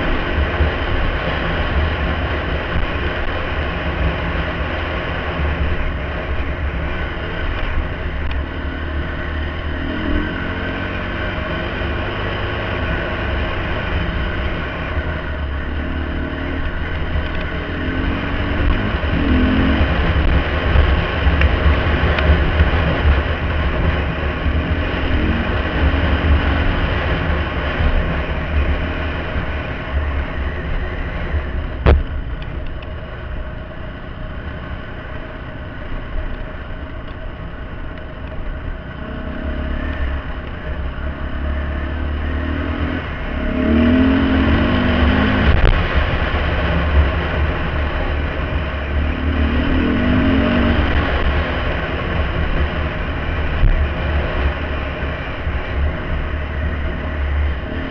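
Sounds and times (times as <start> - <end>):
dirt bike engine revving: 17.6 - 21.0, 41.5 - 45.8, 48.8 - 51.8.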